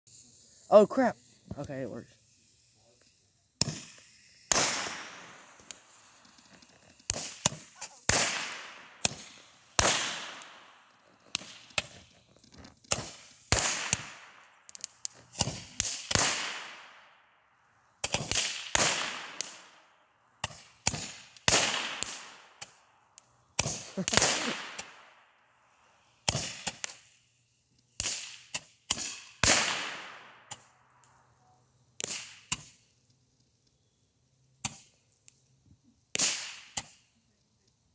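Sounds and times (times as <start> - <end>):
roman candle pops and hiss: 2.2 - 17.0, 18.0 - 19.8, 20.4 - 25.2, 26.2 - 27.2, 27.8 - 31.2, 32.0 - 33.2, 34.6 - 35.4, 36.1 - 37.1.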